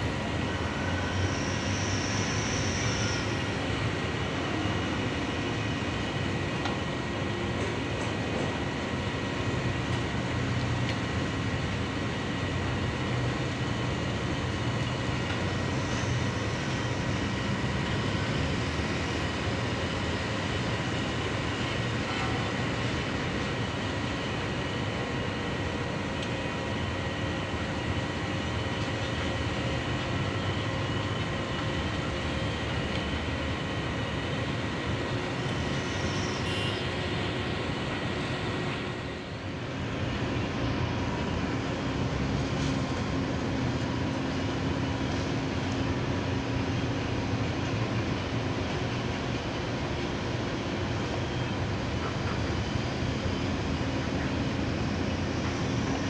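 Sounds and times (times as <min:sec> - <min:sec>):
mechanical hum and rumble: 0:00.0 - 0:56.0.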